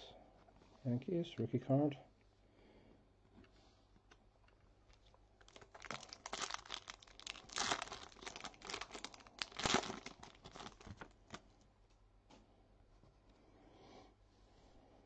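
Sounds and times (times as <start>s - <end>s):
foil wrapper crinkling and tearing: 4.9s - 11.4s.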